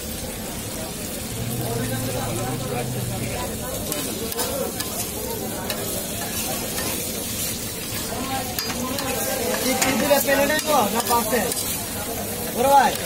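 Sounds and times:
oil sizzling: 0:00.0 - 0:13.0
metal spatula scraping griddle: 0:03.2 - 0:11.8.

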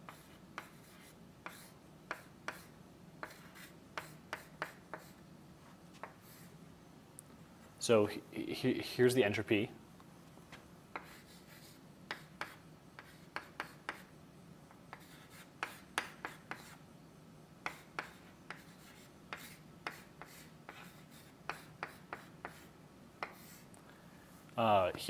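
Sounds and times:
chalk writing on blackboard: 0:00.0 - 0:05.2, 0:06.0 - 0:06.5, 0:10.9 - 0:14.1, 0:14.7 - 0:16.8, 0:17.6 - 0:23.7.

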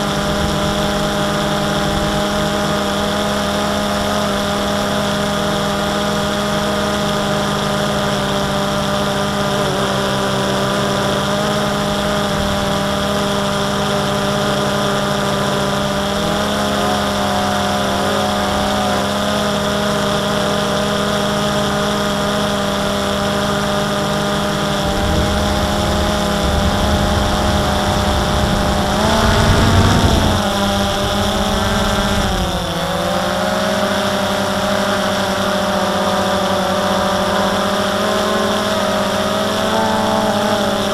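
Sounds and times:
drone propellers whining: 0:00.0 - 0:40.9
wind rumble on microphone: 0:24.2 - 0:33.0.

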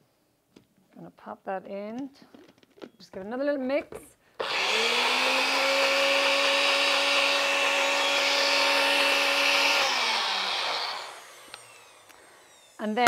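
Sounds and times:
blender motor whining: 0:04.4 - 0:13.0.

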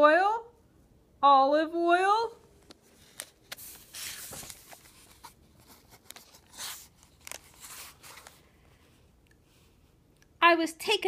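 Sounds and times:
faint rustling and scratching: 0:02.6 - 0:10.0.

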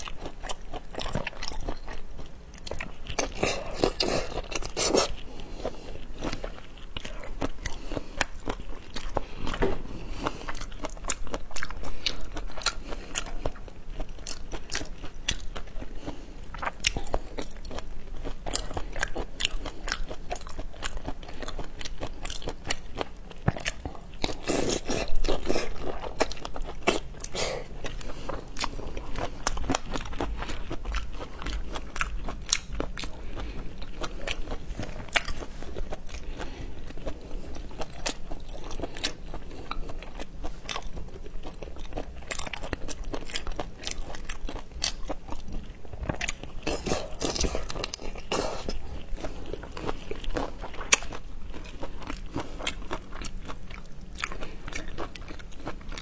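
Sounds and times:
wet chewing and crunching: 0:00.0 - 0:56.0.

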